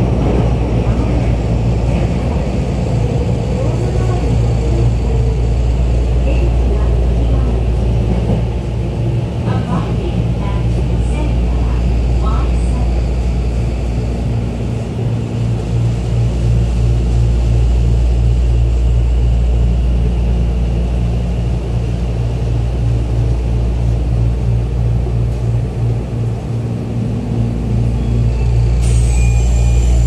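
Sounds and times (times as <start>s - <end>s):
subway train running rumble: 0.0s - 30.0s.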